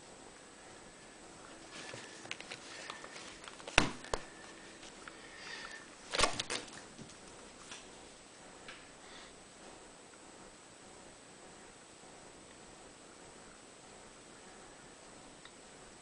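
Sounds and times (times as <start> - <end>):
soft scuffling: 1.5 - 5.1
handling knocks: 2.9 - 4.3.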